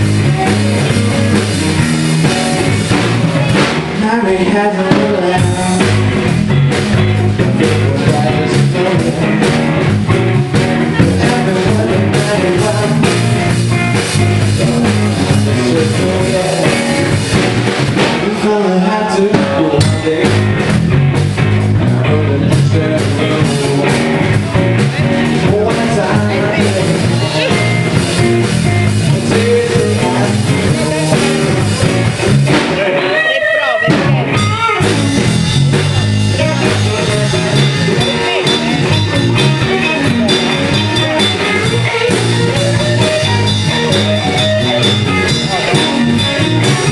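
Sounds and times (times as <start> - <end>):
bass line: 0.0 - 46.9
electric guitar: 0.0 - 46.9
live rock band playing: 0.0 - 46.9
person singing: 3.5 - 6.1, 7.4 - 9.7, 10.4 - 17.4, 18.0 - 20.6, 21.8 - 28.0, 28.8 - 32.0, 36.3 - 46.9.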